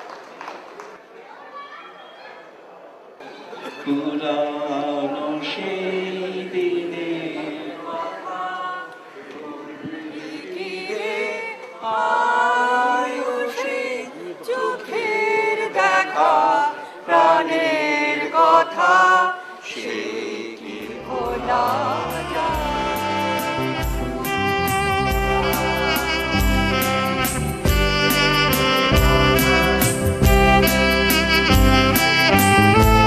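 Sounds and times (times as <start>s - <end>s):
group of voices singing: 3.8s - 32.9s
instrumental music with bass line: 21.3s - 33.0s.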